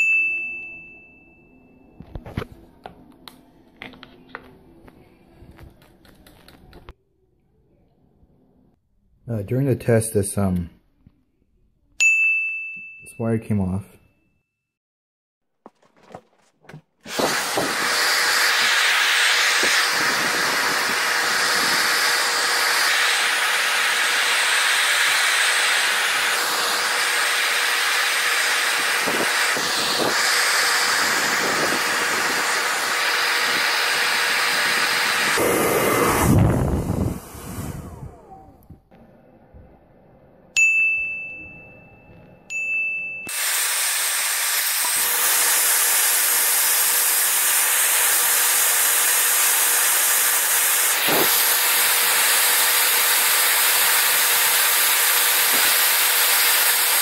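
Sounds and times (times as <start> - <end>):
ringing dings: 0.0 - 2.0, 12.0 - 13.3, 40.6 - 43.3
hair dryer blowing: 16.0 - 38.7, 43.3 - 57.0
motor winding down: 17.1 - 39.3, 43.3 - 57.0.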